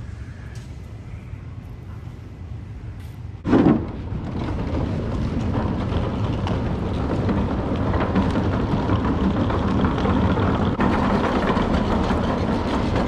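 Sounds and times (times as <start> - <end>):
loud thump: 3.4 - 4.1
suitcase wheels rolling on wood: 3.4 - 13.0.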